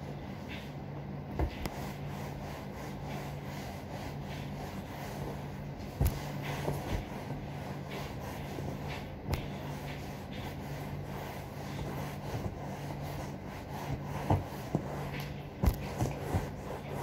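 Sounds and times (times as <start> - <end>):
cloth wiping leather: 1.4 - 17.0.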